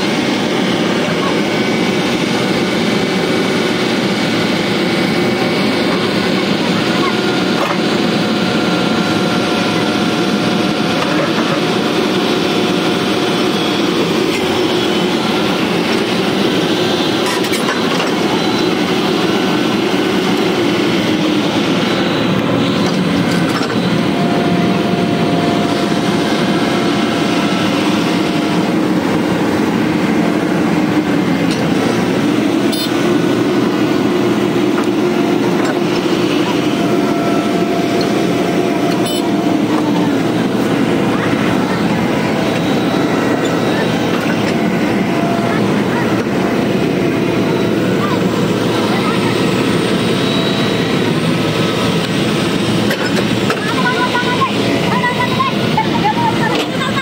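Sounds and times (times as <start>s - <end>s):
excavator diesel engines running: 0.0s - 57.0s.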